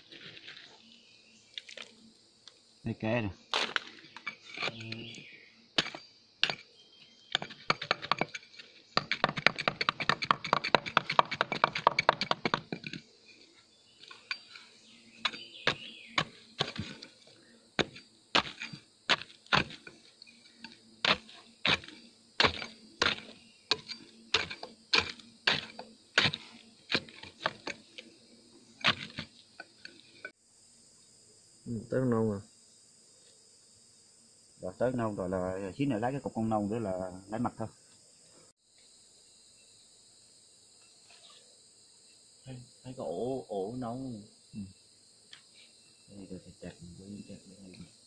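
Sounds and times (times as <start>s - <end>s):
blade chopping into wood: 3.5s - 4.0s, 9.0s - 13.0s, 15.2s - 17.2s, 17.8s - 20.0s, 20.6s - 27.8s, 28.8s - 29.4s.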